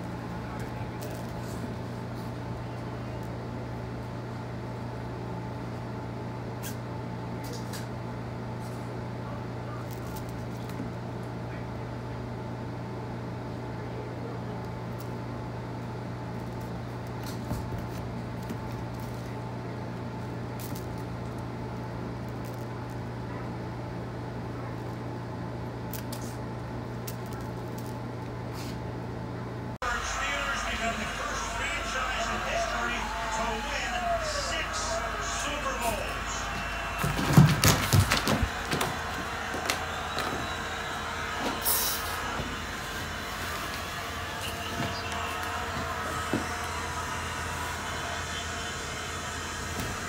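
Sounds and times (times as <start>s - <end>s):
low hum: 13.9s - 50.0s.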